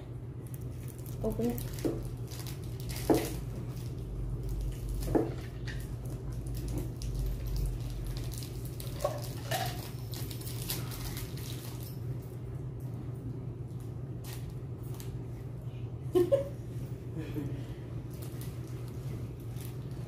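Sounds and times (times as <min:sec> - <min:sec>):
steady low hum: 0:00.0 - 0:20.0
plastic wrapper crinkling and tearing: 0:00.4 - 0:11.9, 0:18.1 - 0:20.0.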